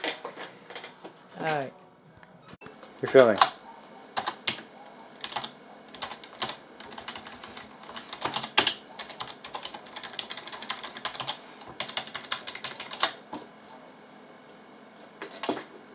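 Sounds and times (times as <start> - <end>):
typing on computer keyboard: 4.2 - 4.6, 5.2 - 13.2.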